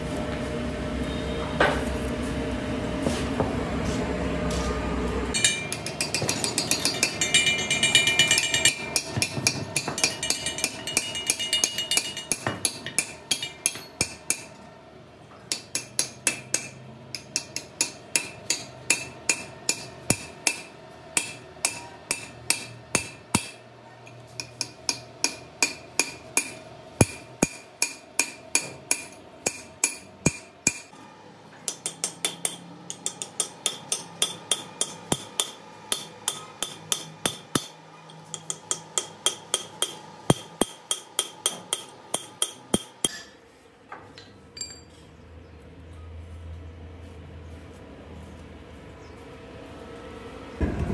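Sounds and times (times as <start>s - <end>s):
hammer striking steel punch: 5.4s - 14.5s, 15.5s - 23.6s, 24.4s - 30.9s, 31.7s - 43.3s.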